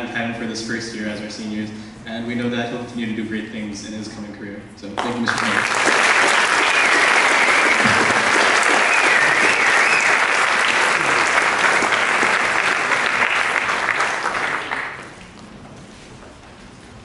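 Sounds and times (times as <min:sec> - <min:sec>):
audience applauding: 0:05.0 - 0:15.4.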